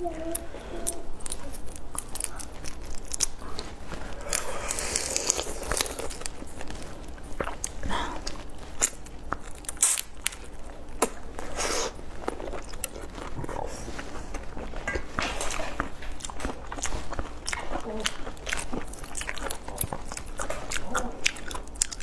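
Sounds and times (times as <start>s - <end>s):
wet chewing: 0.0s - 22.0s
prawn shells crackling and tearing: 0.3s - 11.6s.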